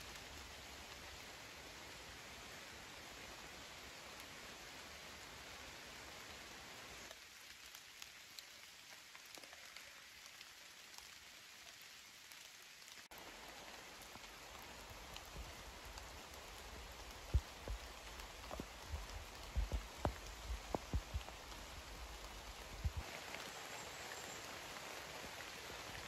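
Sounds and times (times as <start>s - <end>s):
rain falling in forest: 0.0s - 26.0s
low thumps near microphone: 17.2s - 23.0s.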